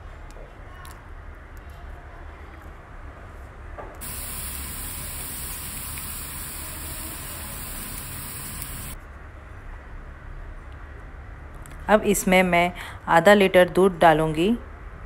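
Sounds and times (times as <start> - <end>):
carrots sizzling in frying pan: 4.0 - 9.0
steady low hum: 4.0 - 9.0.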